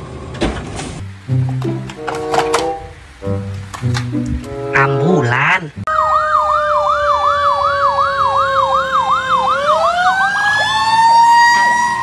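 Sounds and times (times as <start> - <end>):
ambulance siren yelping: 4.8 - 12.0.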